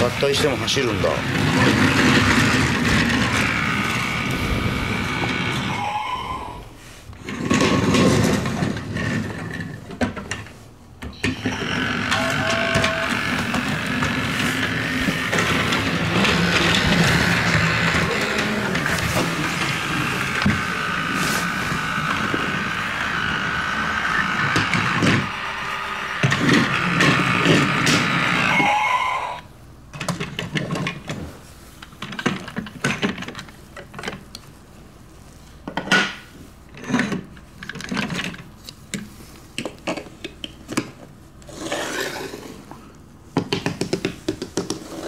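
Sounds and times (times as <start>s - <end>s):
toy train motor whirring: 11.2s - 29.4s.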